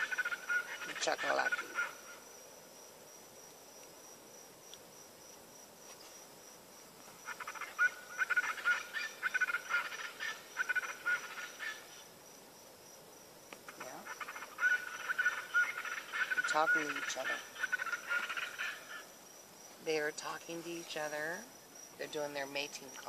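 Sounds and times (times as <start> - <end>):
birds calling rapidly: 0.0 - 2.2, 7.2 - 12.0, 13.6 - 19.2.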